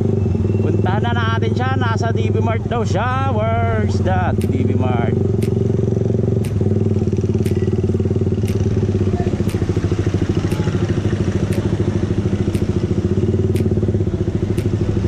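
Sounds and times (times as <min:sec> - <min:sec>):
motorcycle engine running: 0:00.0 - 0:15.0
sharp ticking: 0:04.2 - 0:15.0.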